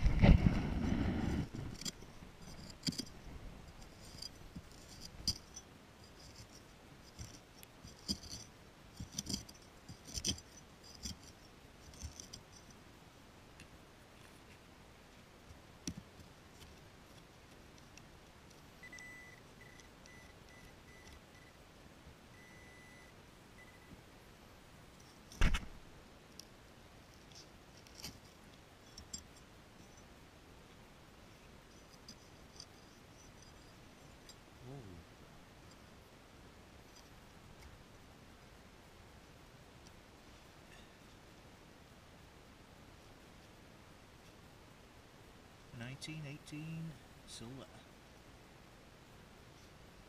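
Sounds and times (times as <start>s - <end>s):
faint high beeping: 18.8s - 21.6s, 22.3s - 23.9s.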